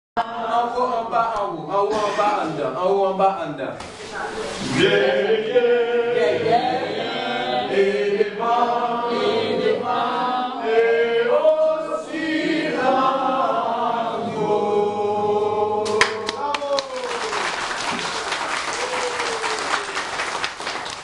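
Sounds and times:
children singing in unison: 4.6 - 15.9.

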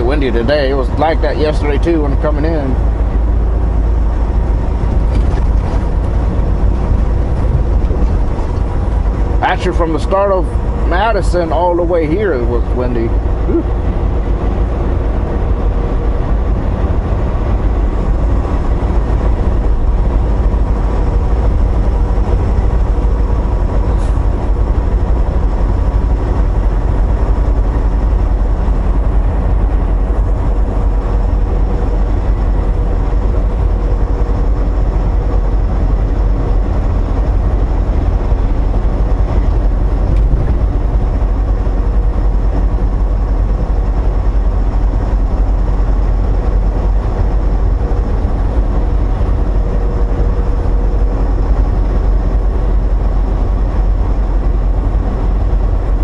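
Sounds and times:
truck cab drone at highway speed: 0.0 - 56.0.

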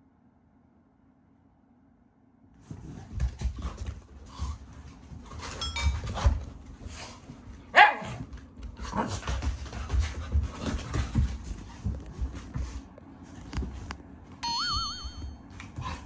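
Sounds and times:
dog barking: 7.7 - 8.2.

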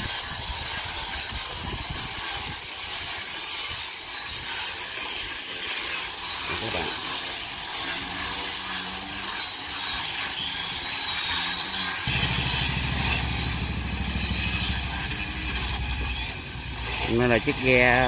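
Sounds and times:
power grinders whining: 4.7 - 18.0
low engine hum: 12.0 - 18.0.

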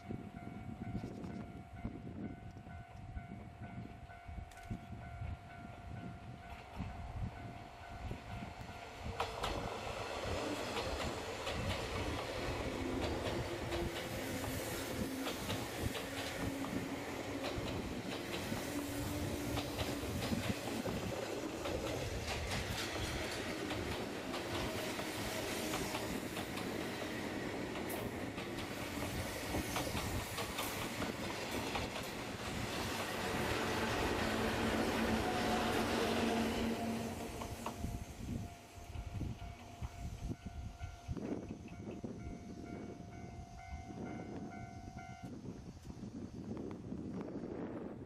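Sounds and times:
train running rumble: 0.1 - 48.0
train wheels clacking over rail joints: 10.4 - 37.9.

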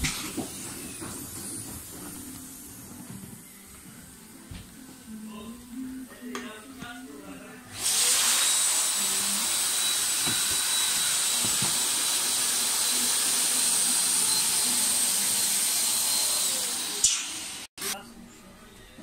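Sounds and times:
air pump hissing: 7.8 - 17.7.

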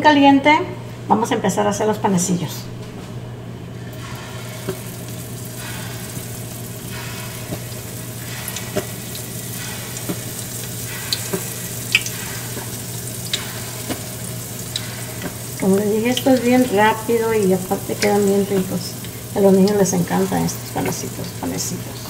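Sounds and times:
batter sizzling in hot oil: 4.0 - 22.0
oil popping and crackling: 4.6 - 22.0.

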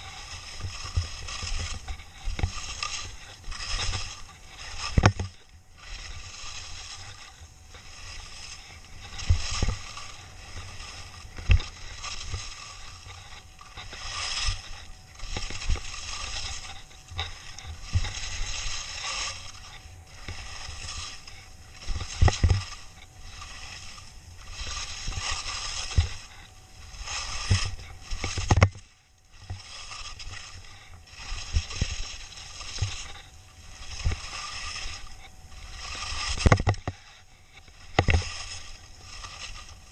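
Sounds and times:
skis knocking on bumps: 0.0 - 19.6
skis scraping over snow: 0.0 - 39.9.

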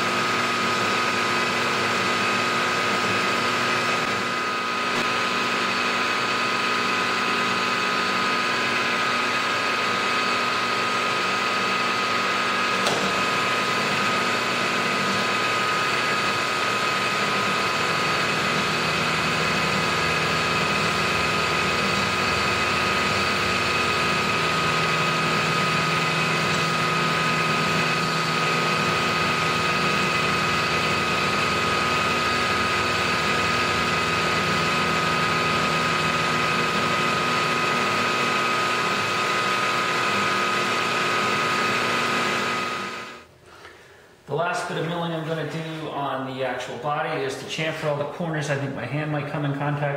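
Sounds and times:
milling machine cutting metal: 0.0 - 43.2.

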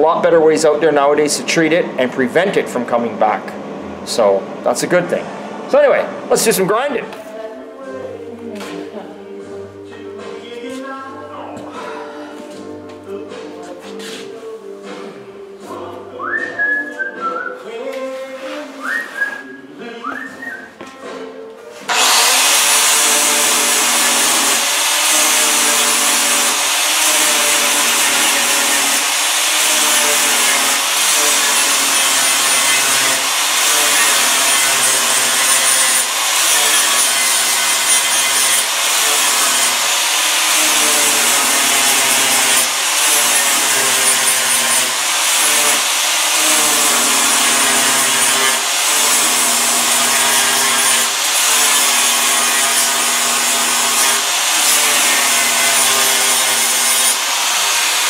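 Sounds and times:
angle grinder grinding metal: 21.9 - 58.0.

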